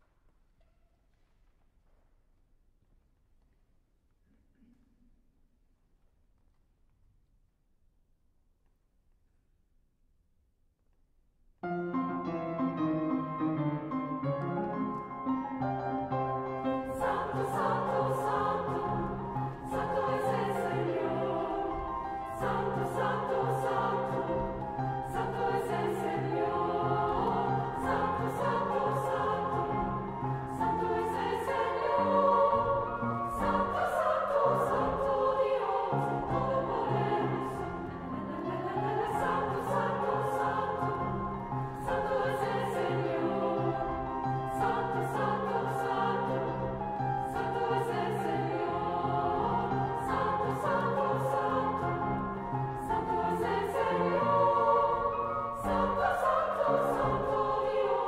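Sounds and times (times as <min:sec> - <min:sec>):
piano accompaniment: 0:11.6 - 0:58.0
girls' choir singing: 0:16.0 - 0:58.0.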